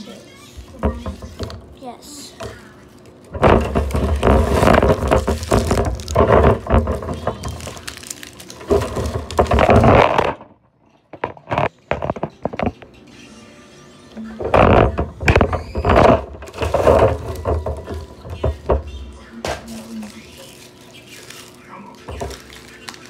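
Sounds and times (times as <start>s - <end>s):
phone handling rustling and scraping: 11.1s - 12.8s.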